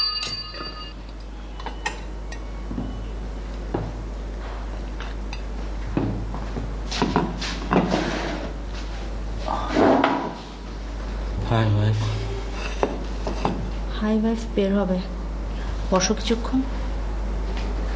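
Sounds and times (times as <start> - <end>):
low hum: 10.5 - 17.9
dishes and cutlery clinking: 12.5 - 13.7.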